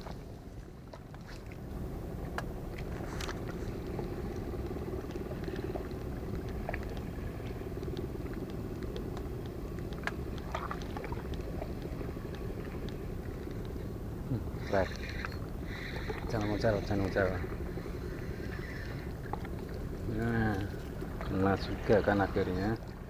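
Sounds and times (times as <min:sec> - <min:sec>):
faint hum: 0:00.0 - 0:23.0
wind and water rumble: 0:00.0 - 0:23.0
light clicks: 0:02.3 - 0:13.8.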